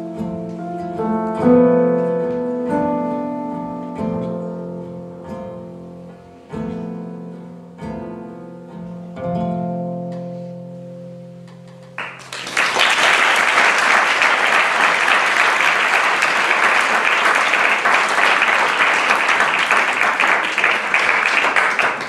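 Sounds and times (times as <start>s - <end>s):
audience applause: 12.0s - 22.0s.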